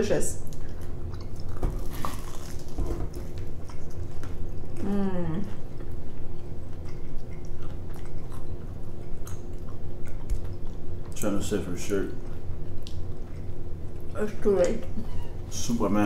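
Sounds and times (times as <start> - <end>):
crunchy chewing and biting: 0.4 - 4.9, 5.5 - 11.5.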